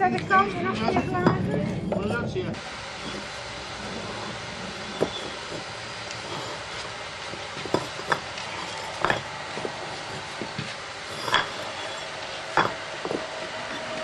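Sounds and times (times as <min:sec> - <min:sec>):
paving bricks clinking: 0:03.0 - 0:14.0.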